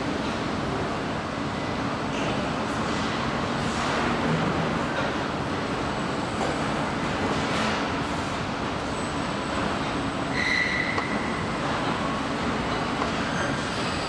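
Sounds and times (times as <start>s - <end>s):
industrial machinery rumble and hiss: 0.0s - 14.0s
high squeal: 10.3s - 11.4s.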